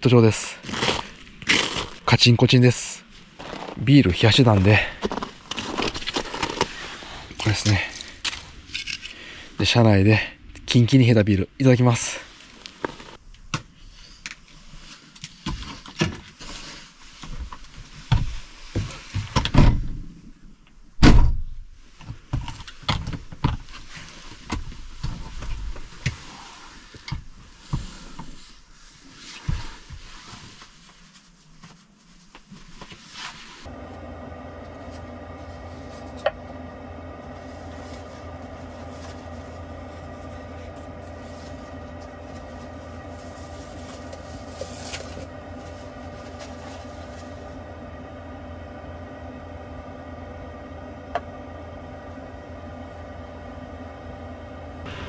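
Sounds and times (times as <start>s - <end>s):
heater humming: 33.6s - 55.0s.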